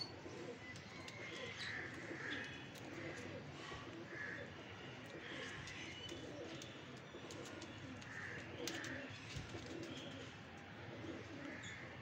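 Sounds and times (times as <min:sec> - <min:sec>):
pigeons cooing: 0:00.1 - 0:12.0
pigeon chirps and clicks: 0:00.6 - 0:02.0.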